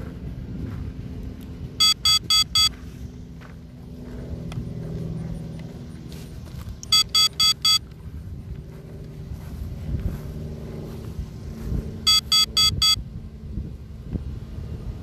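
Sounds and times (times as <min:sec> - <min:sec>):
steady low rumble: 0:00.0 - 0:15.0
shrill electronic alarm beeps: 0:01.8 - 0:02.7, 0:06.8 - 0:07.8, 0:12.1 - 0:13.0.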